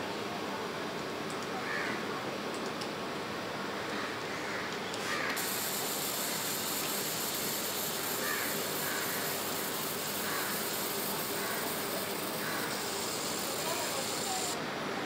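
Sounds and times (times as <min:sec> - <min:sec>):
laser engraver high-pitched hiss: 0:05.2 - 0:14.6.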